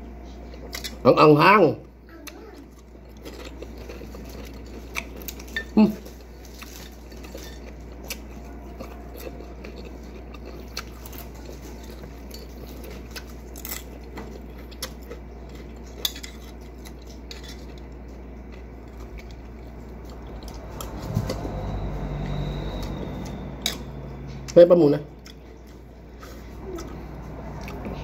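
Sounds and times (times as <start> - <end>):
eating sounds: 2.1 - 21.5.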